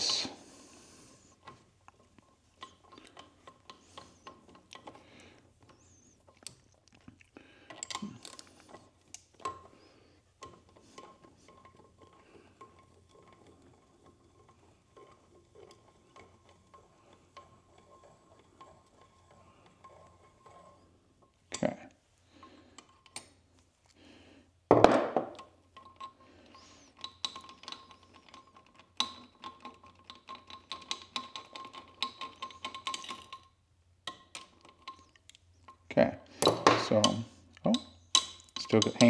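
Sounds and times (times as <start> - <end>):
small metal clinks: 7.6 - 9.7.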